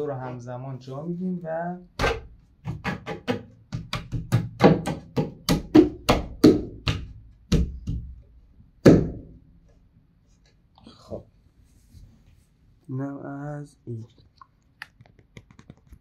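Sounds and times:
hand knocking wooden shelf: 2.0s - 8.2s, 8.8s - 9.4s.

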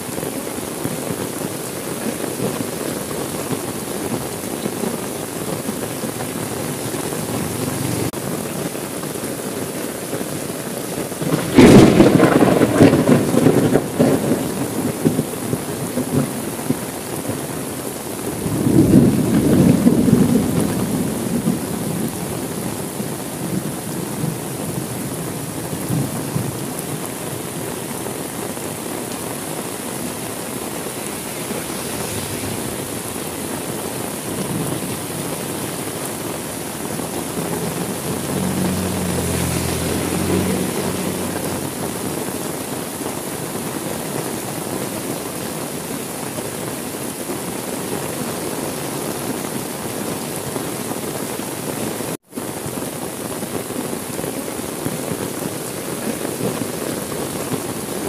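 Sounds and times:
heavy rain falling: 0.0s - 58.0s
thunder rumble: 11.2s - 17.3s, 18.3s - 27.2s, 28.8s - 42.3s.

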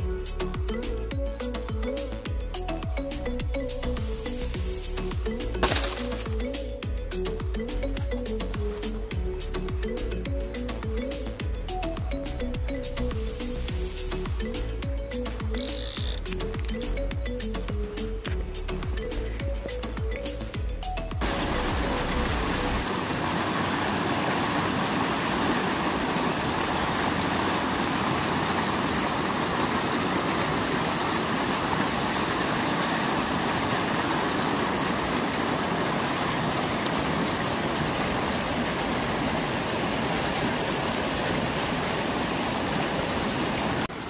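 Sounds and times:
river water rushing over rocks: 5.4s - 12.4s, 21.2s - 44.0s.

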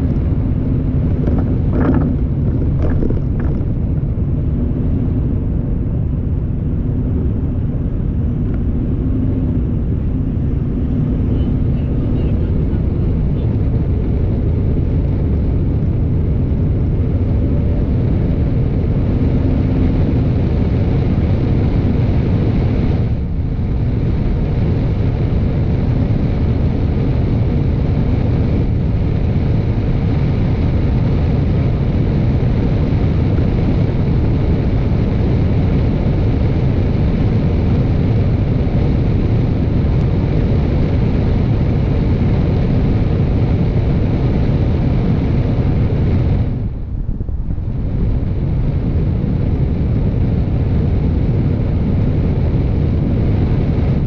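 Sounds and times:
car road and wind noise: 0.0s - 54.0s.

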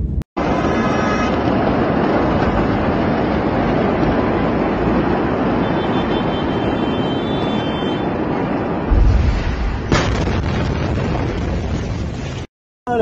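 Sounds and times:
steady rumbling noise: 0.0s - 12.5s
deep explosion boom: 8.8s - 12.5s
sharp blast wave crack: 8.9s - 11.4s.

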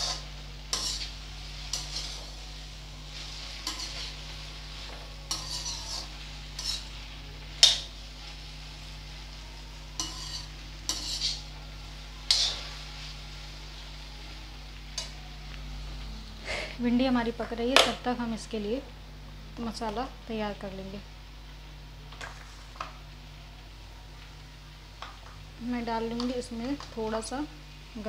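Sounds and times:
metal spatula scraping wok: 0.0s - 2.4s, 3.1s - 7.0s, 10.0s - 11.6s, 12.2s - 13.2s, 14.9s - 15.2s
soft frying sizzle: 0.0s - 28.0s.

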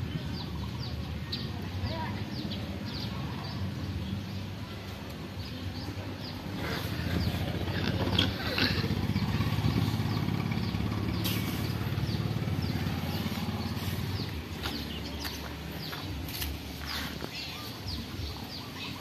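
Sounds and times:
birds chirping: 0.0s - 19.0s
engine running: 5.8s - 18.7s.

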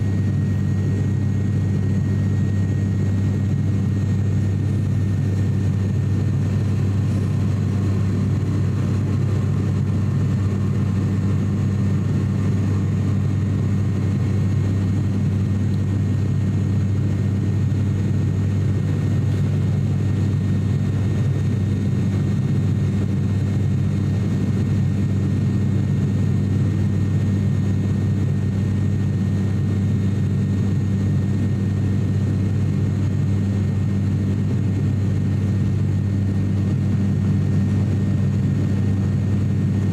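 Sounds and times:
turboprop engine drone in cabin: 0.0s - 39.9s.

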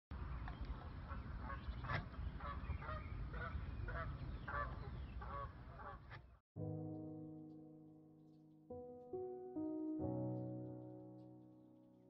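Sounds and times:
low rumble of wind: 0.1s - 6.4s.

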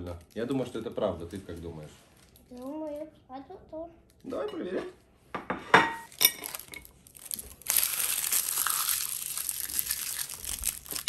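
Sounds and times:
plastic candy wrappers crinkling: 0.0s - 3.1s, 6.1s - 11.0s
candies clinking on ceramic plate: 5.7s - 11.0s.

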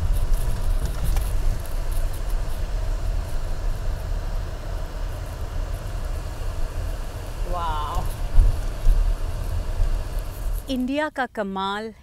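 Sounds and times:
car cabin road rumble: 0.0s - 11.0s.

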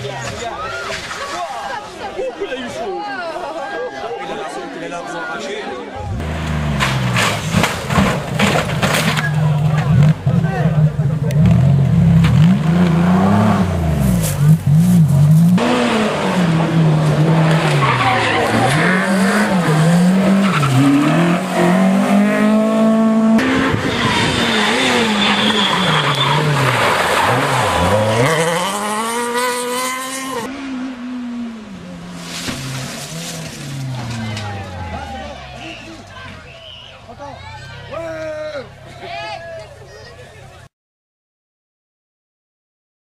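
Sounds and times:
rally car engines revving: 6.0s - 38.0s.

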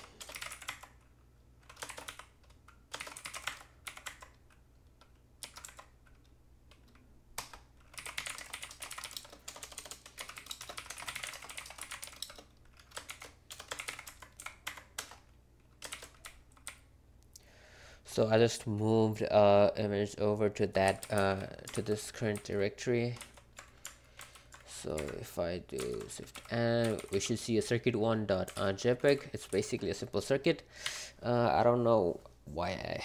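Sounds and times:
computer keyboard typing: 0.0s - 16.9s, 20.8s - 27.5s, 28.3s - 29.8s.

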